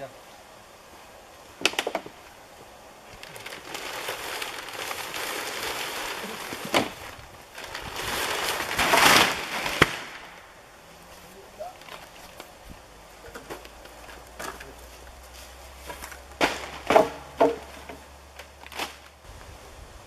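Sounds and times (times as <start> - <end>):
plastic sheeting crinkling: 3.1 - 10.4, 11.2 - 12.5, 13.4 - 19.2
wooden poles knocking: 15.9 - 18.1.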